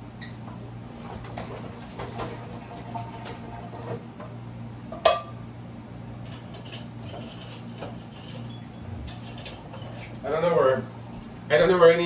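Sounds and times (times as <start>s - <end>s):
steady low hum: 4.1s - 11.7s
dishes and utensils clinking: 6.3s - 10.2s.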